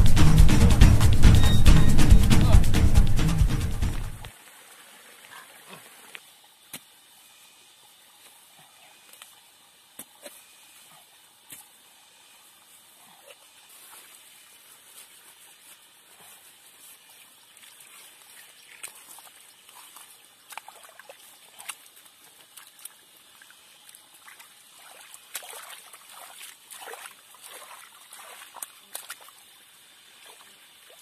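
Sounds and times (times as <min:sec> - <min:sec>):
water splashing and trickling: 0:02.4 - 0:31.0
hands squelching wet mud: 0:13.2 - 0:29.4.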